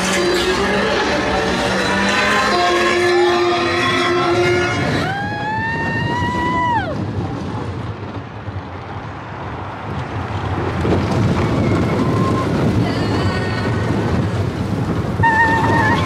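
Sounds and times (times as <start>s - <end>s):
roller coaster train rumbling: 0.0s - 16.0s
wind rushing across microphone: 4.2s - 16.0s.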